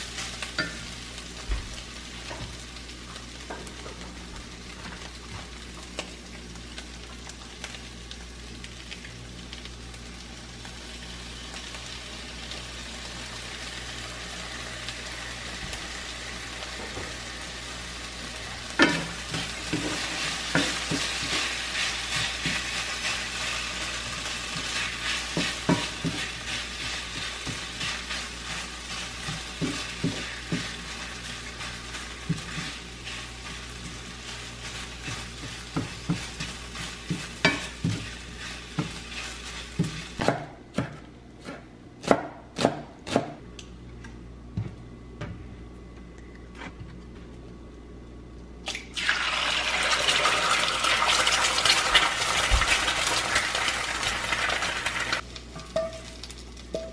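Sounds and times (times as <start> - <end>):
fried rice sizzling in a pan: 0.0 - 40.3, 48.9 - 56.9
spatula scraping and tapping pan: 18.8 - 40.9.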